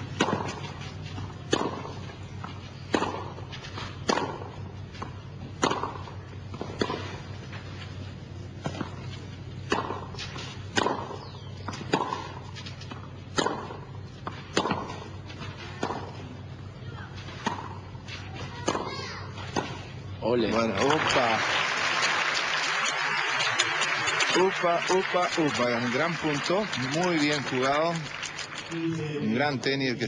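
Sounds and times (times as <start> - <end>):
ball bouncing: 0.0 - 7.2, 8.6 - 16.2
tennis ball hit by rackets: 0.0 - 7.6, 8.6 - 16.2, 17.2 - 19.9
steady low hum: 0.0 - 20.5.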